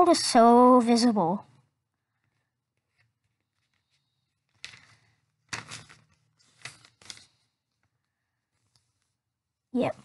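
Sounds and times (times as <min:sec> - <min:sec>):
paper rustling: 0:02.4 - 0:07.6.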